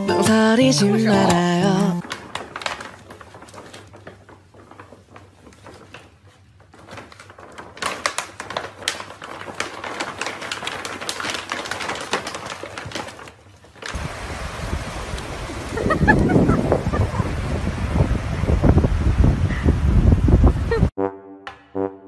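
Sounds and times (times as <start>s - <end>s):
foil pet food bag crinkling: 2.0s - 14.0s.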